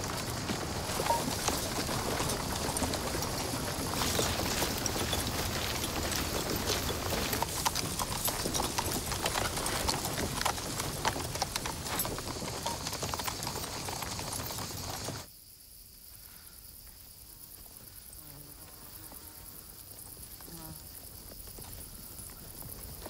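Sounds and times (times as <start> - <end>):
horse hooves clopping on stony track: 0.0 - 15.3, 18.3 - 23.0
marching footsteps: 0.0 - 15.3.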